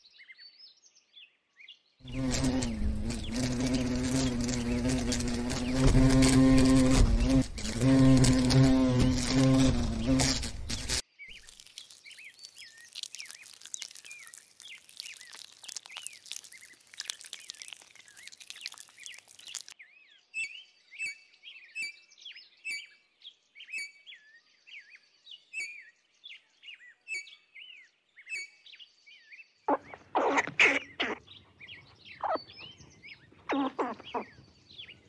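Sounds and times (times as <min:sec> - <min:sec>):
birds chirping: 0:02.0 - 0:19.8, 0:29.7 - 0:35.0
insect buzzing: 0:02.0 - 0:19.8, 0:33.5 - 0:34.3.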